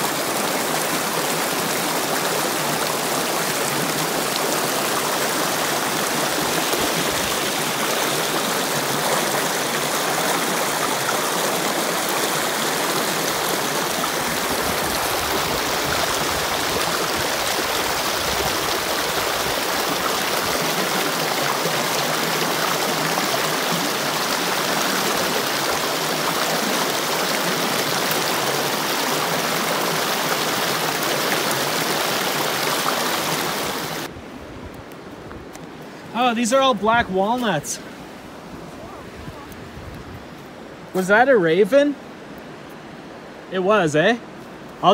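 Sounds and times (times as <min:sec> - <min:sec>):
creek rushing over boulders: 0:00.0 - 0:44.9.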